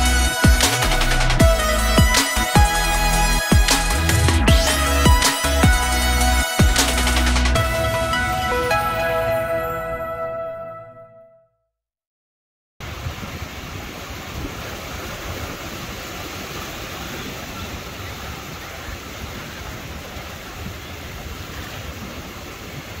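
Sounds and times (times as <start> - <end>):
sea surf washing onto beach: 12.8 - 23.0
wind rumbling on microphone: 12.8 - 23.0.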